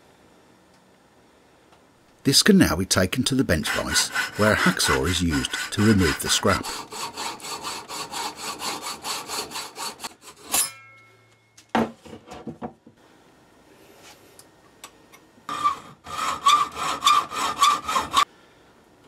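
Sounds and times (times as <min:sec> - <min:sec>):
hacksaw cutting metal: 0:03.5 - 0:10.8, 0:15.5 - 0:18.3
metal clank and ringing: 0:10.5 - 0:11.7.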